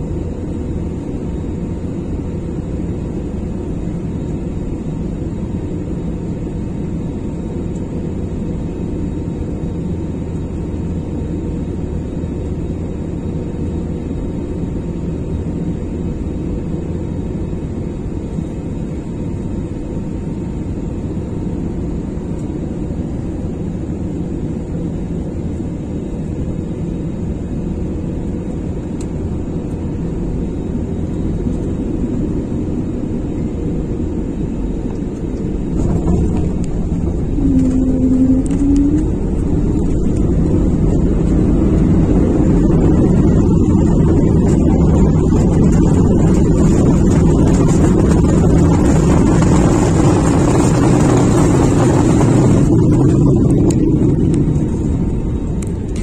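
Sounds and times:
airliner engine and airflow roar: 0.0s - 56.0s
airliner wheels touching down: 34.4s - 56.0s.

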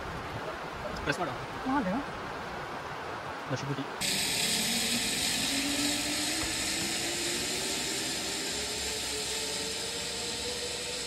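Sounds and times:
zipline trolley whirring on cable: 4.0s - 11.0s.

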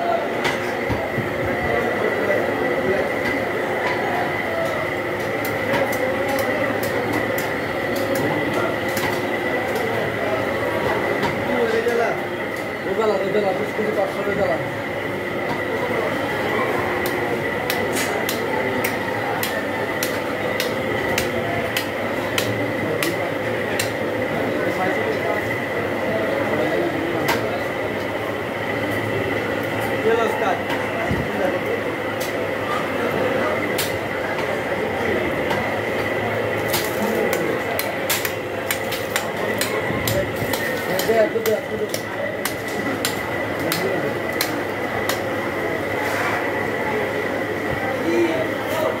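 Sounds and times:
market noise: 0.0s - 49.0s
murmur of voices and clatter: 0.0s - 49.0s
cleaver chopping meat: 16.9s - 24.0s, 36.7s - 45.3s.

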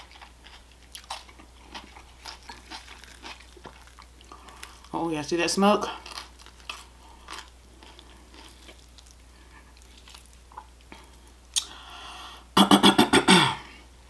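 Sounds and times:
person chewing: 0.0s - 4.9s, 5.8s - 11.8s.

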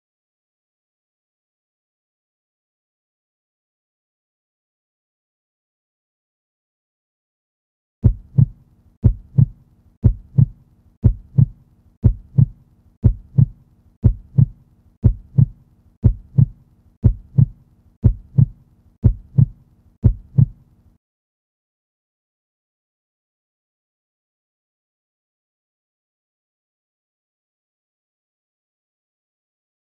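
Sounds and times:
heartbeat thumps: 8.0s - 20.6s.

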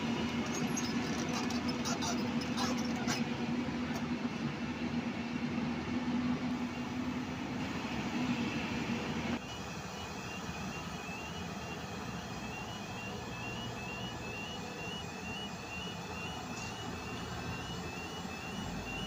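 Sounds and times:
excavator diesel engine humming: 0.0s - 19.0s
machine drone: 6.6s - 19.0s.

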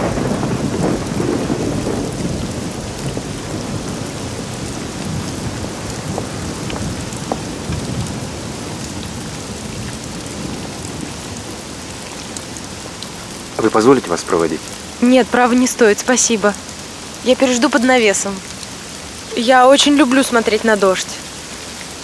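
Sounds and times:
thunder rumble: 0.0s - 12.0s
raindrops ticking: 0.0s - 22.0s
steady rain falling: 0.0s - 22.0s.

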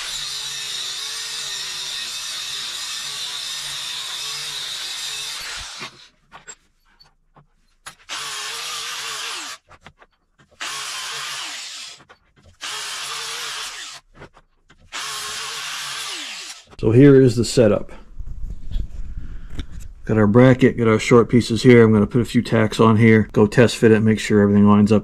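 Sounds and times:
angle grinder on steel: 0.0s - 6.6s, 7.9s - 9.7s, 10.6s - 14.1s, 14.9s - 16.8s.

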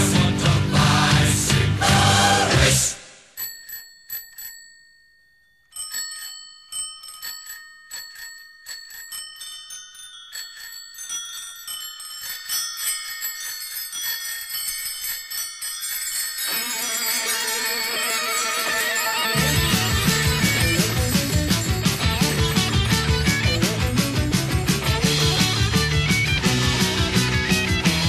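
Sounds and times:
rock song: 0.0s - 2.9s, 19.4s - 28.0s
bicycle bells ringing: 3.3s - 28.0s.

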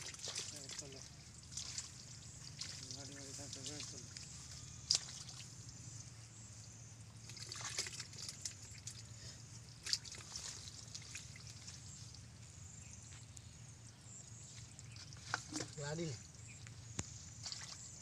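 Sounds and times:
hands splashing in muddy water: 0.0s - 4.3s, 4.9s - 5.5s, 7.2s - 9.1s, 9.8s - 11.9s, 17.4s - 18.0s.

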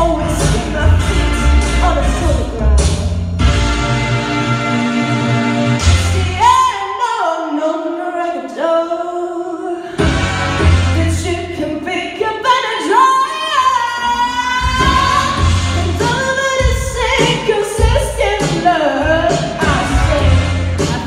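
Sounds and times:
backing track of chords: 0.0s - 6.7s, 14.2s - 21.0s
woman singing into microphone: 6.1s - 10.0s, 11.0s - 21.0s.

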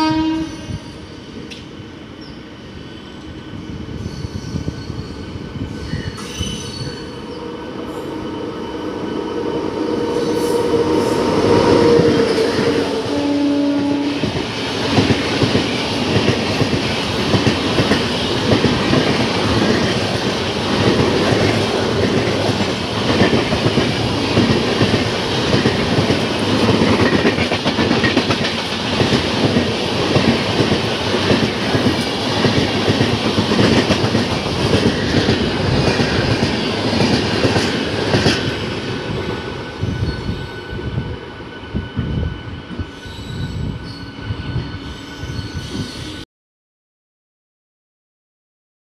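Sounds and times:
train wheels clattering: 14.2s - 39.5s.

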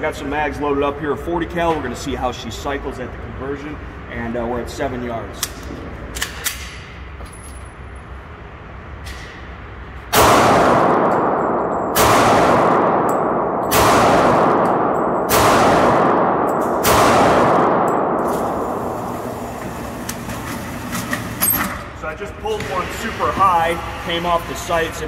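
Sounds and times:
pistol shots echoing indoors: 10.1s - 20.0s.

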